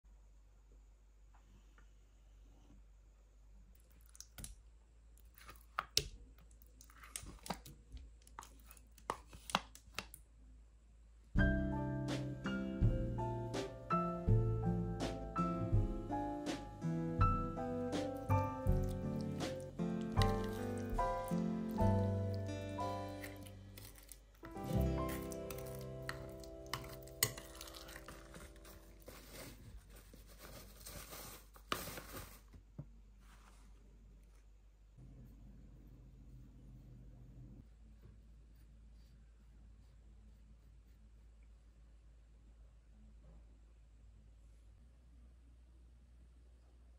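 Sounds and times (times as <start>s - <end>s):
wet squelches and plops: 18.2s - 22.6s
spoon scraping: 18.2s - 32.0s
metal spoon clinking glass bowl: 25.1s - 28.5s.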